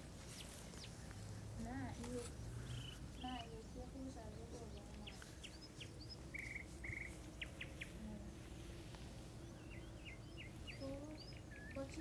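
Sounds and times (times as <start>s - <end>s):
low background rumble: 0.0s - 12.0s
songbirds chirping: 0.0s - 12.0s.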